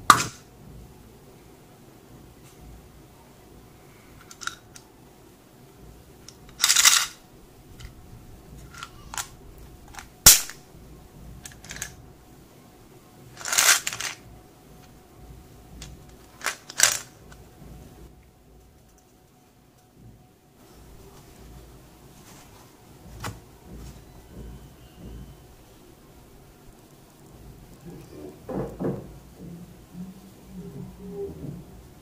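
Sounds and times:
plastic box handling noise: 0:11.4 - 0:12.0, 0:13.4 - 0:14.2, 0:15.7 - 0:17.5.

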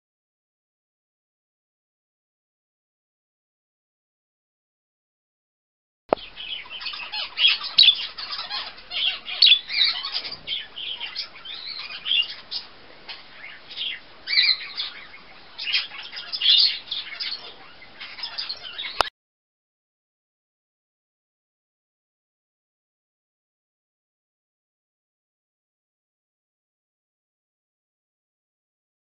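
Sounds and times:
budgerigar chirping and chattering: 0:06.2 - 0:19.1.

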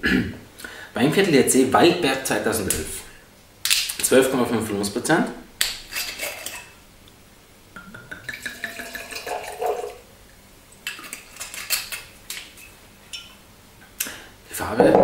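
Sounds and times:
wine pouring into glass: 0:07.9 - 0:10.1.

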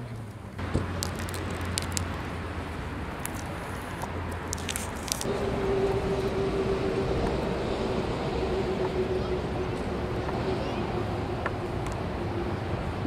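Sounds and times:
steady outdoor hum: 0:00.0 - 0:13.0
butter wrapper crackling: 0:00.8 - 0:02.3, 0:03.1 - 0:05.3
steady droning tone: 0:04.5 - 0:13.0.

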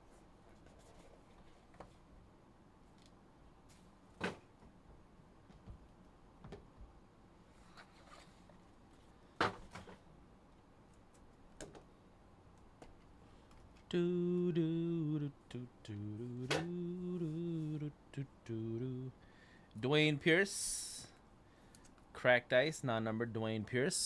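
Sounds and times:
man humming: 0:13.9 - 0:19.2.

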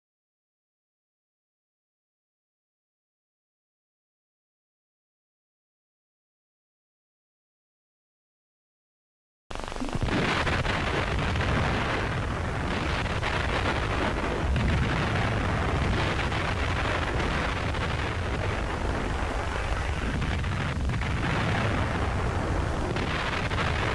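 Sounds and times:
loud rumbling rush of noise: 0:09.5 - 0:23.9.

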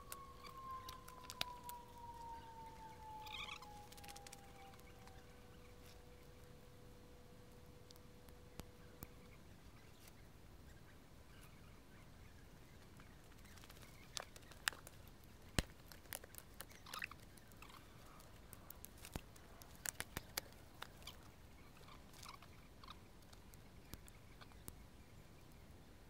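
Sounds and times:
dry twigs snapping: 0:00.1 - 0:02.4, 0:03.0 - 0:05.2, 0:13.4 - 0:21.3.

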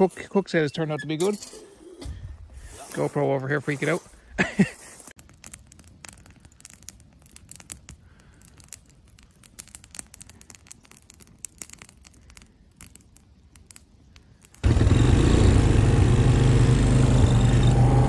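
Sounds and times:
campfire crackling and popping: 0:05.0 - 0:14.9.

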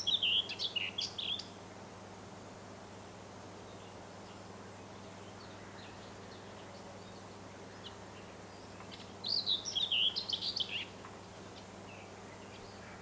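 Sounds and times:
faint bird chirps: 0:00.0 - 0:01.6, 0:03.6 - 0:13.0
songbird warbling: 0:00.0 - 0:01.6, 0:05.2 - 0:13.0
low steady hum: 0:00.0 - 0:13.0.

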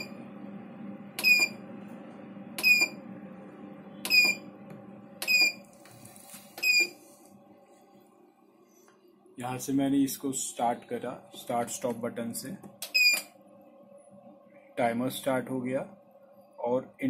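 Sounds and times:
low steady hum: 0:00.0 - 0:17.0
electronic keypad beeps: 0:04.0 - 0:04.4, 0:05.2 - 0:05.6, 0:06.6 - 0:06.9, 0:12.9 - 0:13.3.

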